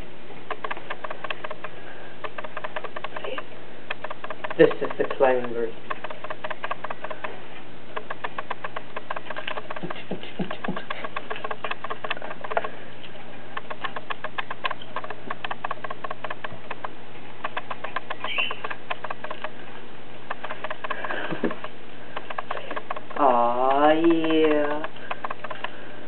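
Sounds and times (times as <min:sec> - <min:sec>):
low steady hum: 0:00.0 - 0:26.0
parakeet claws and beak clicking: 0:00.4 - 0:19.6, 0:20.2 - 0:26.0
parakeet chirp: 0:18.1 - 0:18.8.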